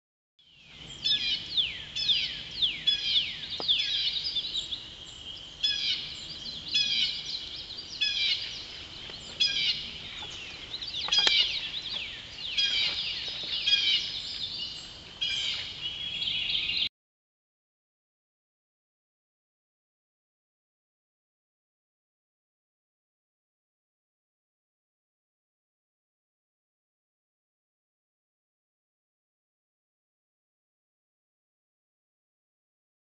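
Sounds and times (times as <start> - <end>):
songbirds singing: 0.4 - 16.9.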